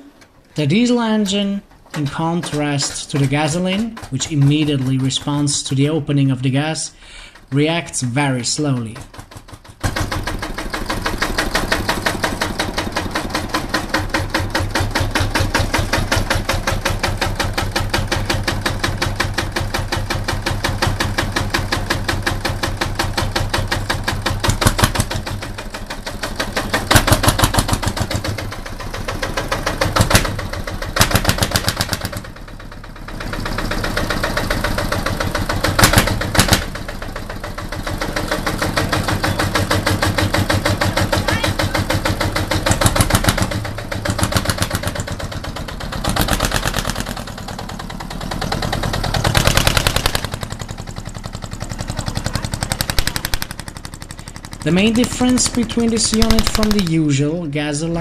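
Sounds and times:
motorcycle diesel engine clattering: 0.0s - 58.0s.

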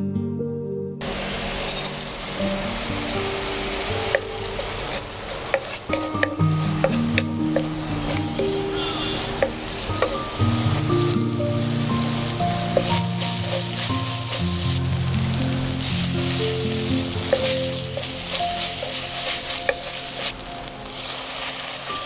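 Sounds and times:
masala sizzling in oil: 1.0s - 22.0s
wooden spatula stirring in pan: 1.0s - 22.0s.

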